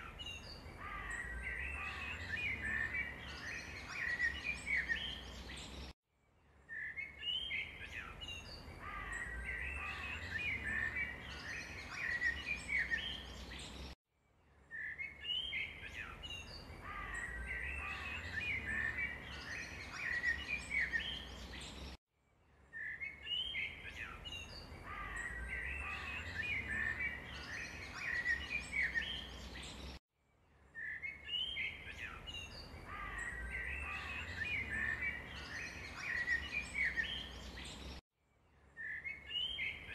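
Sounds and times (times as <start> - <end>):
birds chirping: 0.0 - 6.0, 6.6 - 14.0, 14.7 - 22.0, 22.7 - 30.0, 30.7 - 38.0.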